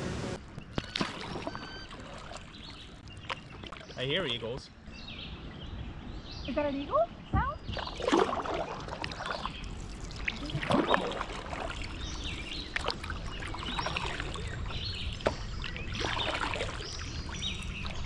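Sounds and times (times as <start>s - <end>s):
paddle splashing in water: 0.8s - 4.0s, 7.7s - 18.0s.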